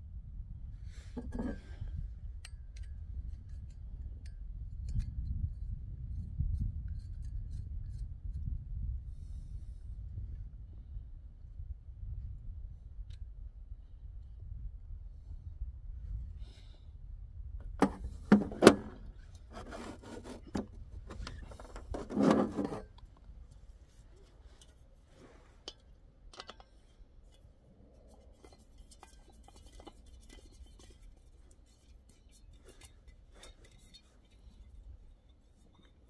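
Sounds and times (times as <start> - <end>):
objects rubbing and scraping: 1.1 - 1.8, 17.8 - 23.0.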